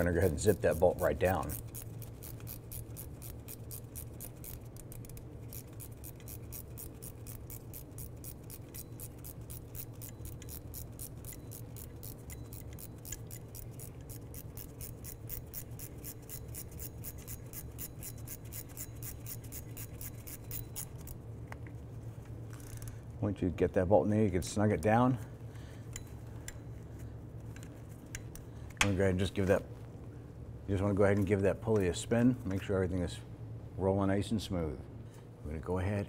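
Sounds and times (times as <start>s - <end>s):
ratcheting wrench clicking: 0.0s - 21.2s, 22.5s - 22.9s.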